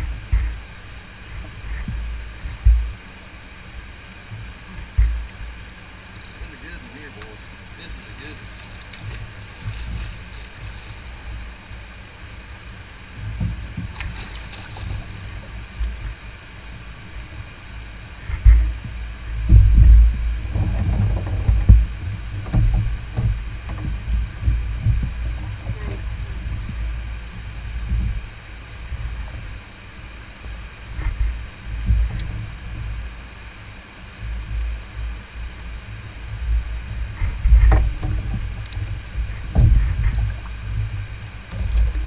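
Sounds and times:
low thumps and knocks on kayak: 0:00.0 - 0:00.6, 0:01.3 - 0:03.0, 0:04.3 - 0:05.5, 0:08.5 - 0:11.5, 0:13.2 - 0:16.2, 0:18.2 - 0:29.6, 0:31.0 - 0:33.0, 0:36.4 - 0:42.0
fish splashing in water: 0:13.6 - 0:16.0.

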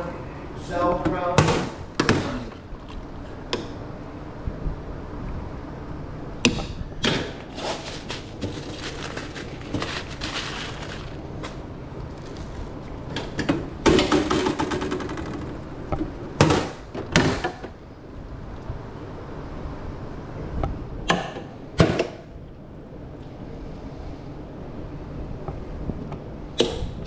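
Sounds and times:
clattering and rustling: 0:07.2 - 0:15.6
cart clanks and knocks: 0:13.1 - 0:17.7.

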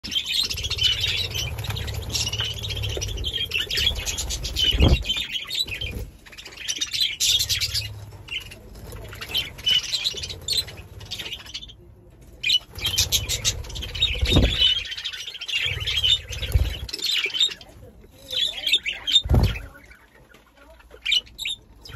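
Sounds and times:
wings fluttering: 0:00.0 - 0:11.6, 0:12.4 - 0:17.2, 0:18.2 - 0:21.2
budgerigars chattering: 0:00.0 - 0:11.8, 0:12.4 - 0:21.9
low thumps: 0:00.7 - 0:05.2.

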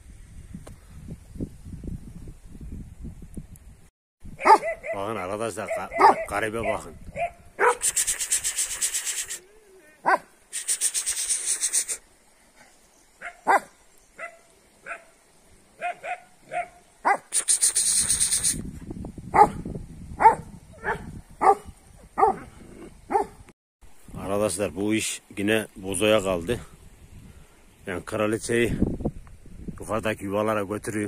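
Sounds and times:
dogs yipping and barking: 0:04.4 - 0:08.0, 0:10.0 - 0:10.3, 0:13.2 - 0:15.1, 0:15.8 - 0:17.3, 0:19.3 - 0:19.6, 0:20.2 - 0:23.4.

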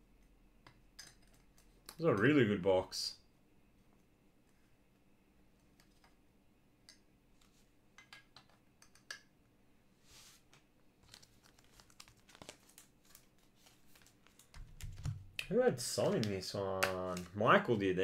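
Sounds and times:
trading cards being handled: 0:10.1 - 0:18.0.

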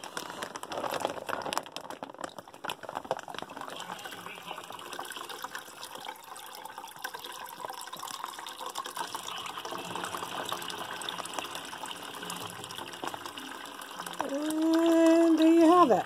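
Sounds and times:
juice pouring into water: 0:00.0 - 0:16.0.

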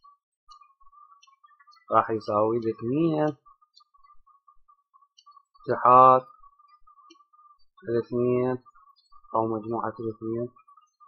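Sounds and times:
stylus scratching on tablet: 0:00.0 - 0:11.0
man speaking: 0:01.9 - 0:03.4, 0:05.7 - 0:06.3, 0:07.8 - 0:08.7, 0:09.3 - 0:10.6.

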